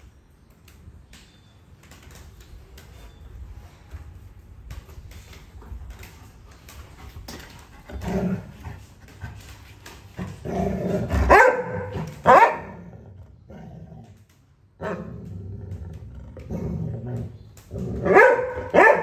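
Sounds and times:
dog barking sharply: 11.3 - 12.7, 18.1 - 19.0
dog growling: 12.7 - 18.1.

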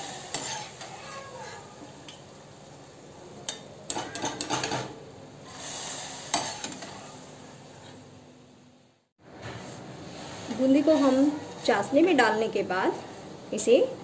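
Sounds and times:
frying oil sizzling: 0.0 - 7.8.

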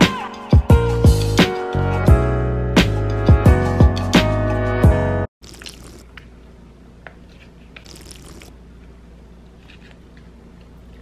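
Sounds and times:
sucking from squeeze pouch: 7.7 - 8.5.

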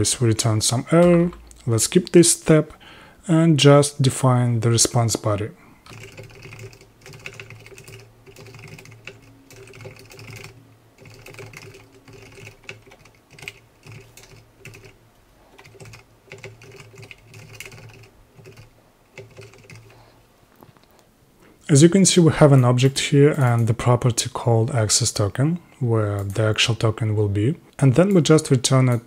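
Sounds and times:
typing on computer keyboard: 5.9 - 20.0.

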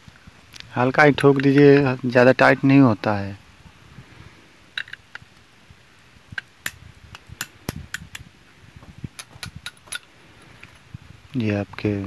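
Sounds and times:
metal-on-metal taps and clinks: 9.2 - 10.1.

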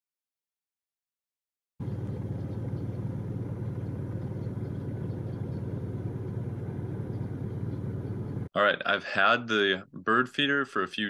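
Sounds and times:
low outdoor rumble: 1.8 - 10.6.

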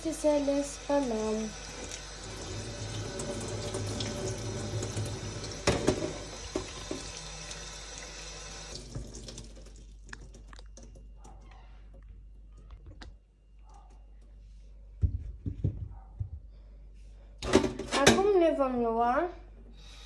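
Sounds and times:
fruit rinsed in metal colander: 0.0 - 10.7
water dripping: 0.9 - 5.7, 6.3 - 11.4
tap running into metal sink: 2.9 - 7.2.

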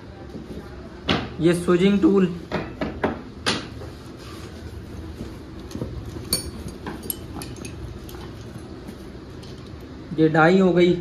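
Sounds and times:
hand tools clicking and tapping: 5.6 - 8.5.

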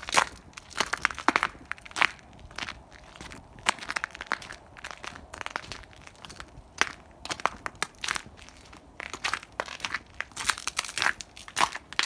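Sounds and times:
footsteps crunching frozen snow: 0.0 - 12.0.

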